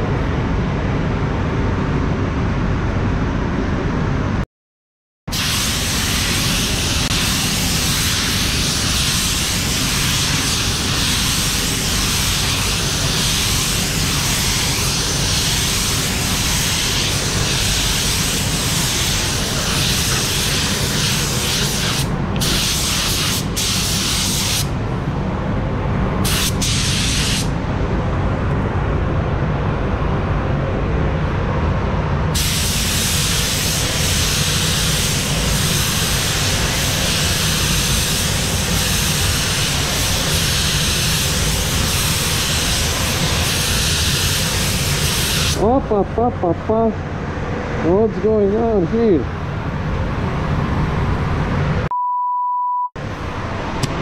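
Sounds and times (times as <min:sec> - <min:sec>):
paint spray gun hissing: 0:05.3 - 0:24.7, 0:32.4 - 0:45.6.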